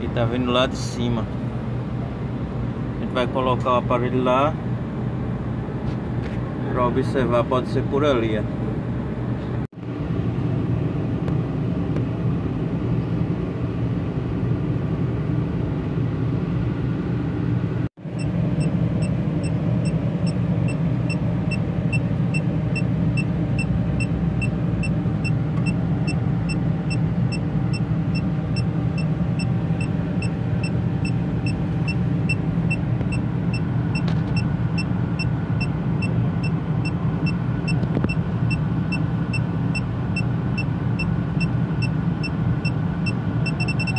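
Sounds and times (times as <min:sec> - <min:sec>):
leak detector beeping: 0:40.2 - 0:43.9.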